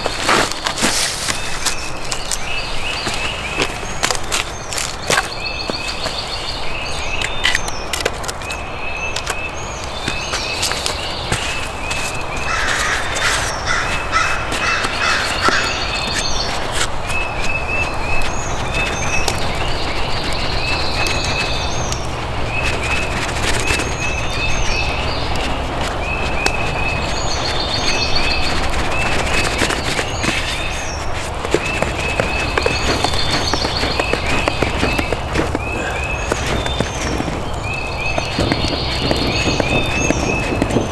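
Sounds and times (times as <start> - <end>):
birds chirping: 0.0 - 40.9
crows cawing: 12.4 - 16.1, 35.6 - 36.7.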